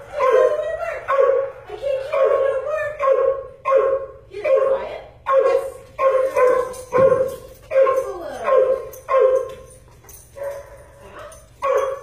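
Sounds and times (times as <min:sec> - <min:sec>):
dog barking: 0:00.1 - 0:09.5, 0:10.4 - 0:12.0.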